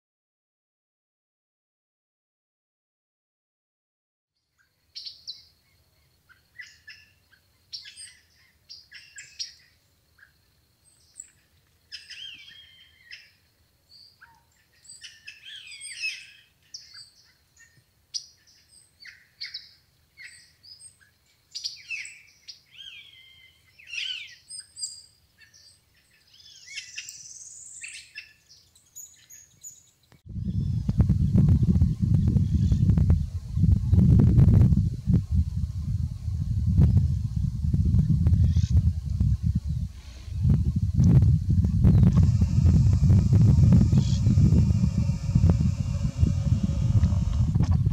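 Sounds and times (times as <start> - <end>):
birds chirping and whistling: 11.9 - 13.2, 14.8 - 17.2, 21.6 - 33.0, 38.0 - 40.4, 41.7 - 47.5.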